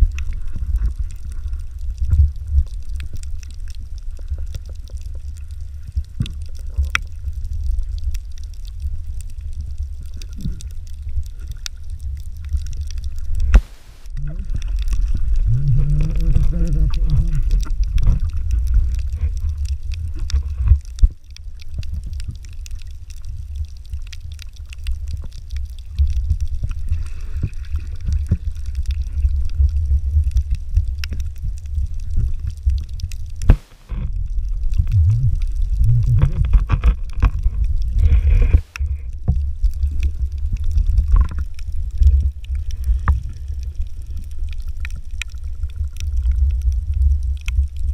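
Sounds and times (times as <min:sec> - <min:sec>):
underwater rumble of moving water: 0:00.0 - 0:47.9
muffled wavering tones: 0:13.5 - 0:17.6, 0:34.8 - 0:36.5.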